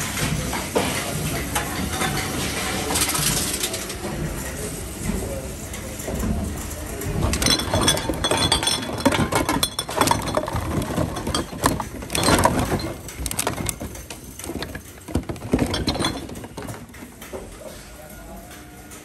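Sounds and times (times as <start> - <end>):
plastic bottles and cans clattering: 6.0 - 17.7.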